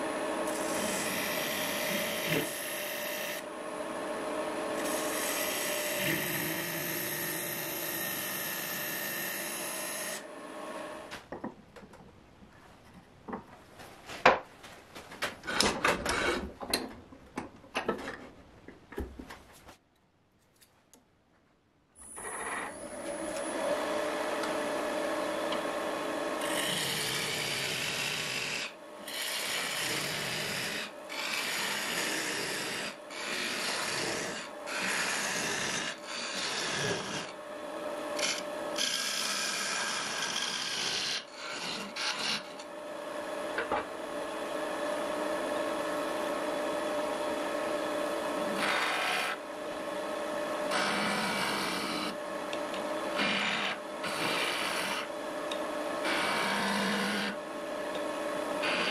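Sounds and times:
lathe motor hum: 0.0 - 11.0, 22.3 - 58.9
chisel scraping spinning wood: 0.5 - 3.4, 4.8 - 10.2, 26.4 - 37.4, 38.1 - 42.7, 48.4 - 49.4, 50.6 - 58.9.

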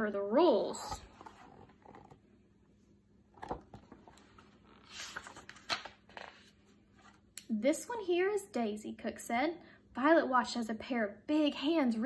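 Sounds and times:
book pages rustling: 0.9 - 2.3, 3.3 - 7.3.

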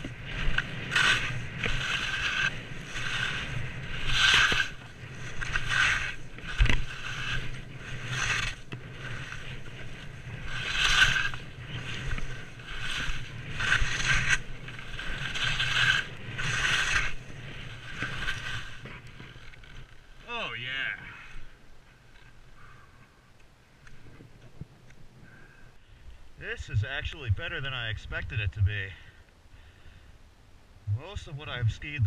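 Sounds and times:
skis scraping over snow: 0.0 - 23.1, 26.4 - 29.1, 30.9 - 32.0
low rumble: 30.8 - 32.0.

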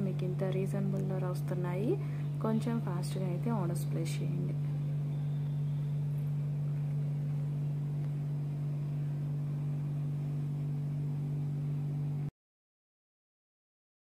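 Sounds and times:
steady low hum: 0.0 - 12.3.

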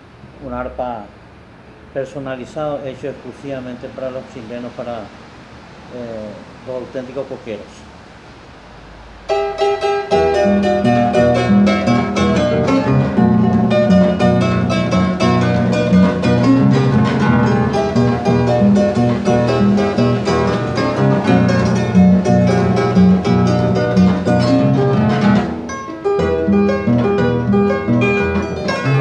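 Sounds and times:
bass strings ringing: 9.3 - 29.0
harp plucked notes: 9.3 - 29.0.

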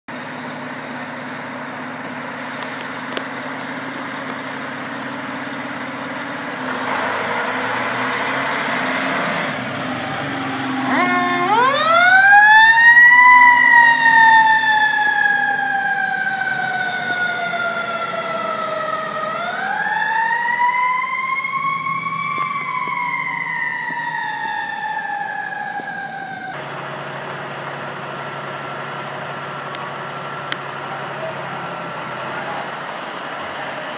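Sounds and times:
fire truck engine running: 0.1 - 33.9
siren winding up and down: 6.7 - 26.6.

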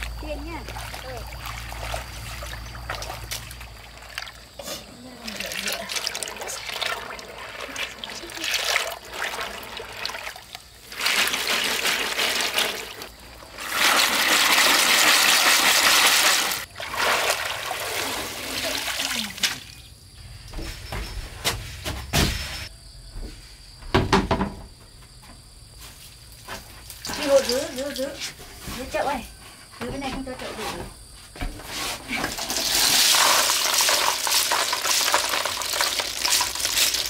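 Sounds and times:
water splashing and pouring: 0.0 - 19.9, 26.4 - 28.3, 32.2 - 37.0.

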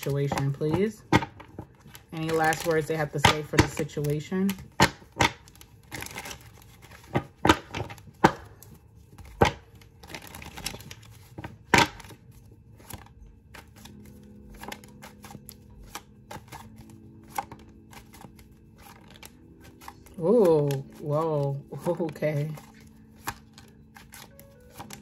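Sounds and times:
cards shuffling: 0.0 - 25.0.

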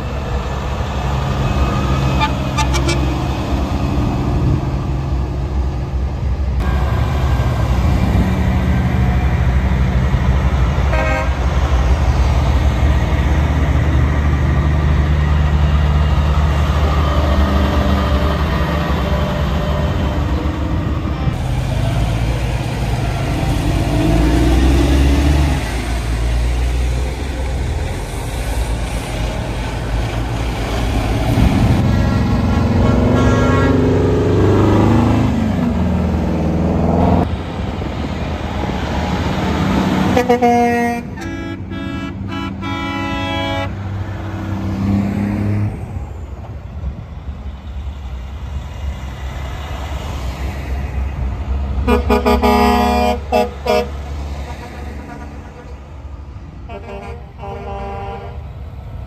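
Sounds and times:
trucks driving by: 0.0 - 59.0
truck horn toots: 2.1 - 3.2, 10.9 - 11.4, 31.6 - 34.1, 40.1 - 43.8, 51.8 - 56.0, 56.7 - 58.5.

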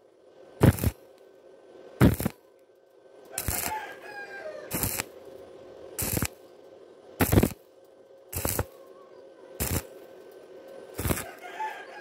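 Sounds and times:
welding arc crackling: 0.6 - 1.4, 2.0 - 2.4, 3.2 - 4.0, 4.7 - 6.5, 7.2 - 8.8, 9.6 - 11.4.

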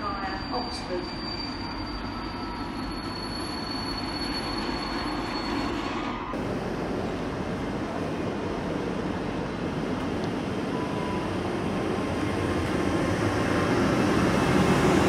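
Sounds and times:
train wheel squeal: 0.0 - 6.4.

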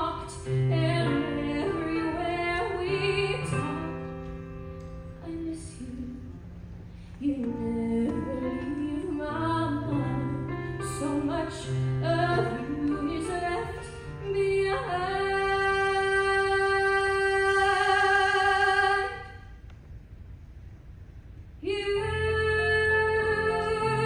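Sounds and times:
woman singing a slow ballad: 0.0 - 4.4, 5.1 - 6.4, 7.1 - 19.4, 21.6 - 24.0
soft instrumental accompaniment: 0.0 - 19.0.

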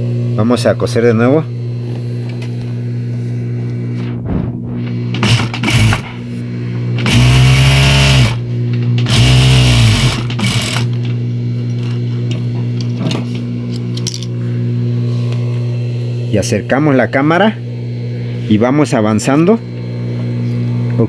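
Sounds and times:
steady hum: 0.0 - 21.0
sewing machine running: 5.2 - 6.0, 7.0 - 8.4, 9.1 - 10.9.

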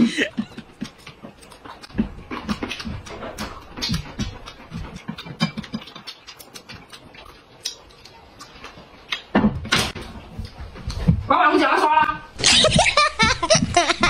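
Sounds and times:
chewing: 0.0 - 11.2.

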